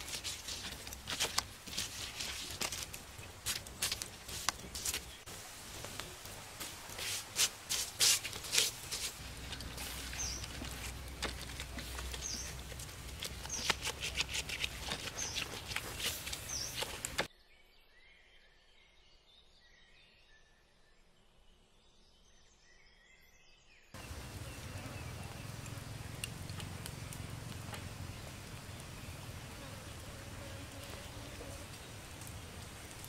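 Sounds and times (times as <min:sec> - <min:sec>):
wood fire crackling and hissing: 0:00.0 - 0:17.3, 0:24.0 - 0:33.0.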